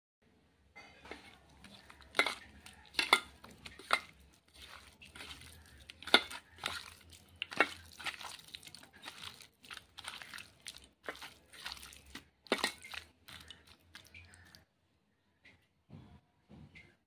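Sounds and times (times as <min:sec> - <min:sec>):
hand squelching chicken in coating: 0:01.1 - 0:14.6.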